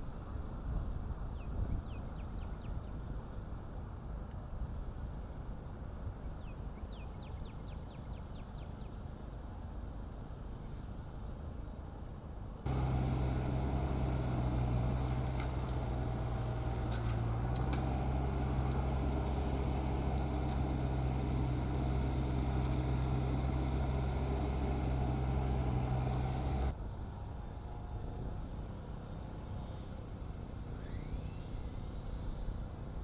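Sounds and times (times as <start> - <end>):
outdoor background: 0.0 - 33.0
diesel engine running: 12.7 - 26.7.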